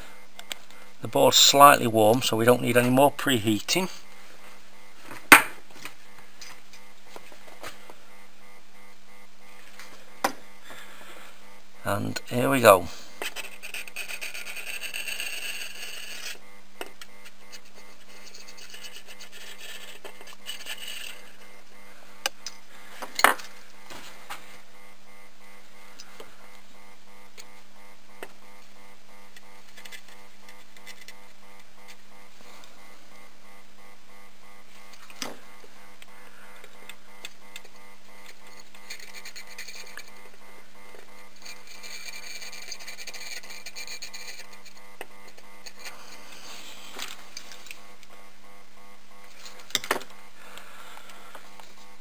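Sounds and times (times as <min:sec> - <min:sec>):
electrical hum: 0:00.0 - 0:52.0
fast machine-like pulsing: 0:24.5 - 0:52.0.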